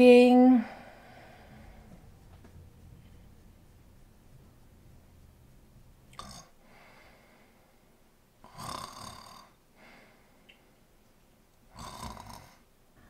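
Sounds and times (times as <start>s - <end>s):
woman mock snoring: 8.5s - 9.6s, 11.7s - 12.6s.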